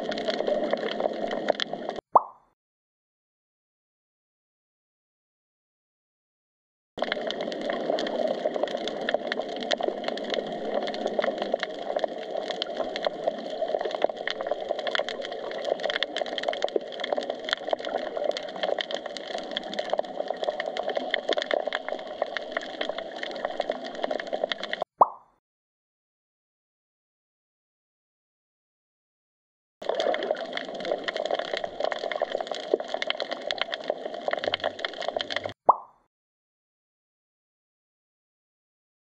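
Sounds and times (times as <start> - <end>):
underwater crackling clicks: 7.0 - 25.3, 29.8 - 36.0.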